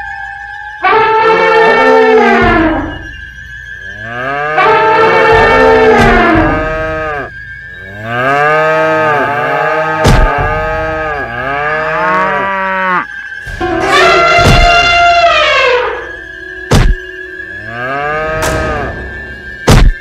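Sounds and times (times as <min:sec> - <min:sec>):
cattle mooing: 0:00.8 - 0:03.0, 0:03.9 - 0:16.2, 0:17.6 - 0:19.1
sharp knock: 0:10.0 - 0:10.5, 0:16.7 - 0:17.0, 0:18.4 - 0:20.0.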